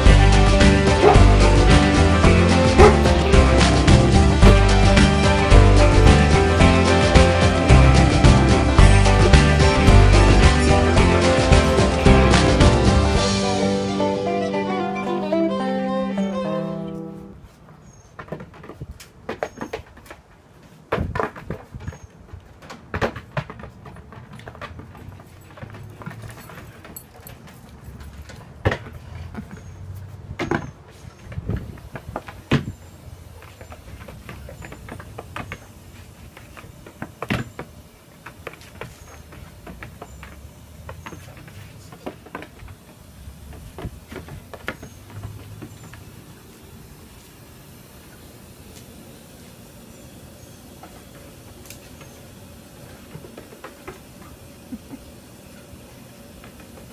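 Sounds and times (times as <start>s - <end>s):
hooves tapping on hard platform: 0.0s - 13.2s, 17.7s - 46.2s, 52.8s - 55.0s
steady background hiss: 31.6s - 56.9s.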